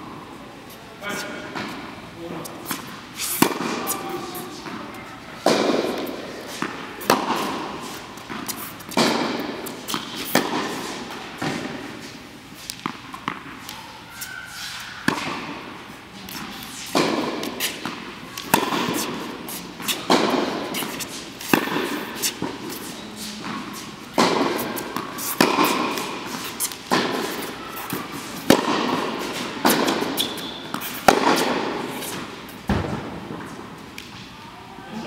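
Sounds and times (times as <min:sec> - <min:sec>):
racket strings striking ball: 0:02.7 - 0:04.8, 0:05.4 - 0:11.9, 0:15.0 - 0:33.4
ball bouncing on hard court: 0:02.7 - 0:11.8, 0:12.7 - 0:13.8, 0:15.0 - 0:15.6, 0:16.2 - 0:33.6.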